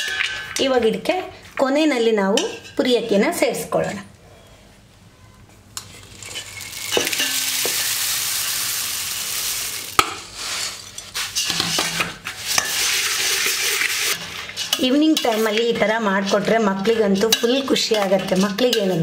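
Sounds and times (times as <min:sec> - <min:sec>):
puffed rice pouring into bowl: 0:06.0 - 0:10.8
spatula scraping steel bowl: 0:10.4 - 0:19.0.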